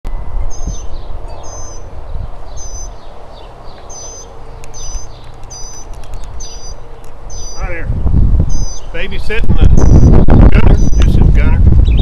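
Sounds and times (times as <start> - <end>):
bird calling high note: 0.4 - 9.0
low rumble on microphone: 7.8 - 12.0.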